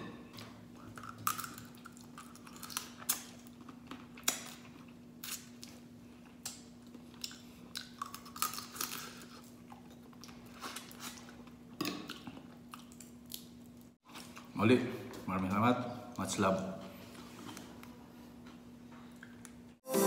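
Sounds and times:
person chewing and sucking: 0:00.8 - 0:14.4.

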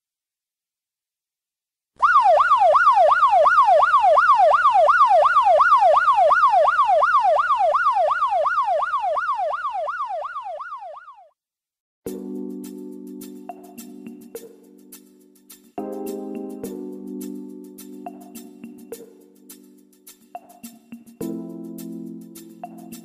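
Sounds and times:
electronic siren wailing: 0:02.0 - 0:11.3.

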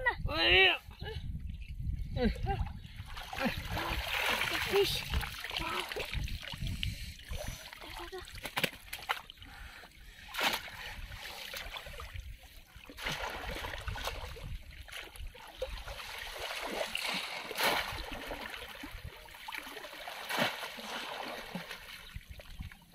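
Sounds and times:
muddy water sloshing: 0:02.6 - 0:22.9
loud splashes: 0:03.3 - 0:06.2, 0:12.9 - 0:14.2, 0:16.3 - 0:18.7, 0:19.5 - 0:21.9.

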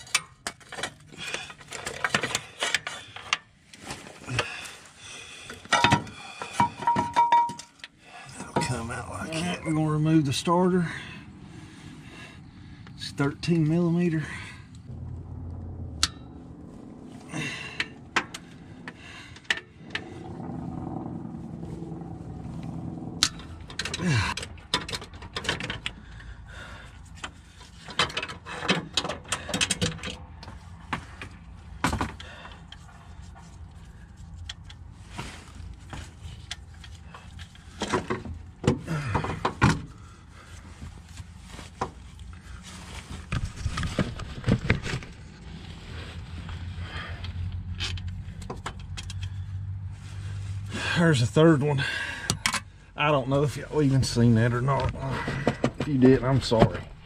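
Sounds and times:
steady low hum: 0:01.2 - 0:28.6.

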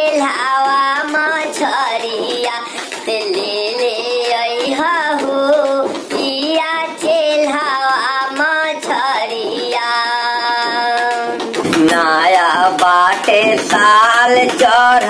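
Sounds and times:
high voice singing: 0:00.0 - 0:15.0
steady percussion beat: 0:00.0 - 0:15.0.

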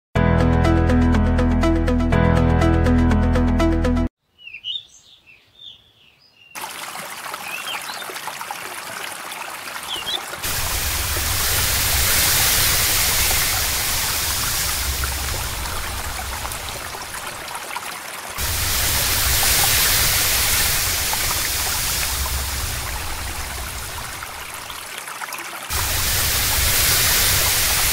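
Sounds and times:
music: 0:00.2 - 0:04.1
birds chirping: 0:04.2 - 0:06.6, 0:07.4 - 0:08.2, 0:09.8 - 0:10.4
stream flowing over stones: 0:06.6 - 0:27.9.

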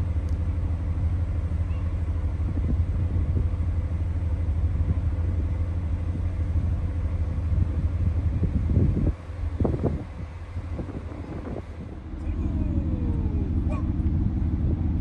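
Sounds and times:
wind buffeting microphone: 0:02.3 - 0:03.8, 0:07.2 - 0:15.0
faint machinery hum: 0:09.9 - 0:15.0.

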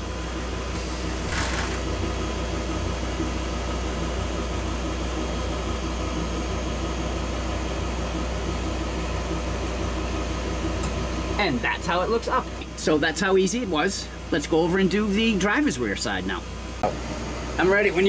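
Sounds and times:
leveling jack mechanical hum: 0:00.0 - 0:18.0.

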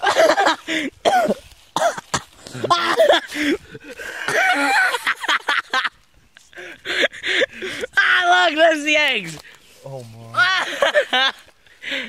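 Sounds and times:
footsteps in dry leaves: 0:00.0 - 0:05.0, 0:08.2 - 0:12.0
people exclaiming and laughing: 0:02.5 - 0:09.2, 0:10.0 - 0:12.0.

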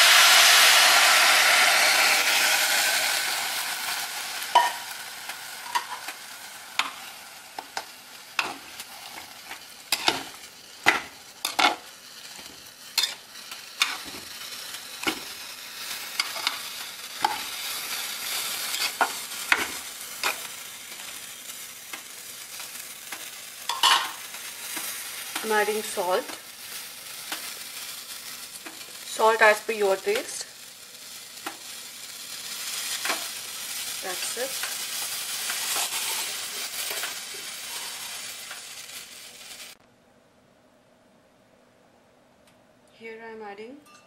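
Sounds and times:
water hissing in hot pot: 0:00.0 - 0:12.5, 0:27.6 - 0:39.8.

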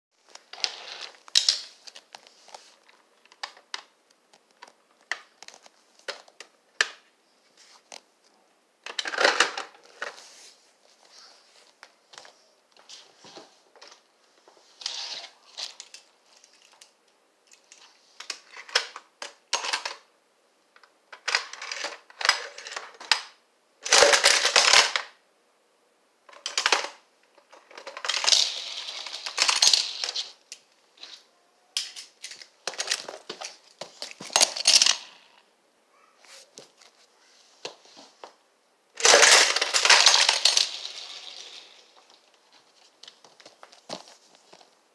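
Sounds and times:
plastic rattling clatter: 0:26.3 - 0:30.3, 0:31.8 - 0:35.1, 0:39.0 - 0:42.1
plastic toy parts clicking: 0:39.0 - 0:41.7.

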